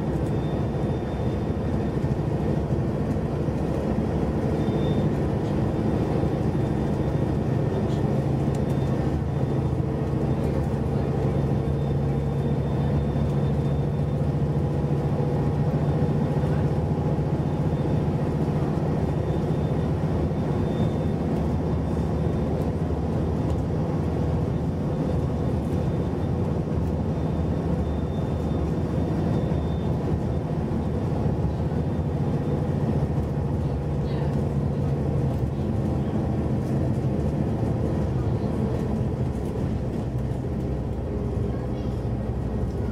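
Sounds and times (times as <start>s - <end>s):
bus engine hum: 0.0s - 42.9s
tyre and road noise: 0.0s - 42.9s.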